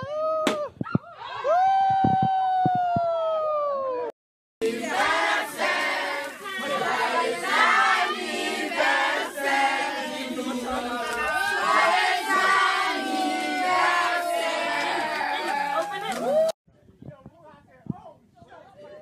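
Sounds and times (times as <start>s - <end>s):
group singing and shouting: 4.6s - 15.6s.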